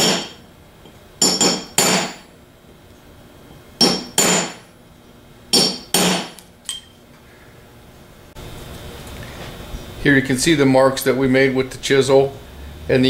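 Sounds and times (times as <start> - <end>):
hammer striking metal chisel: 0.0 - 0.4, 1.2 - 2.3, 3.8 - 4.6, 5.5 - 6.9.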